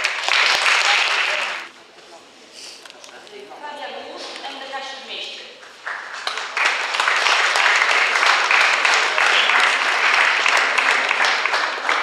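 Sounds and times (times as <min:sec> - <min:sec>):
audience applauding: 0:00.0 - 0:01.7, 0:05.7 - 0:12.0.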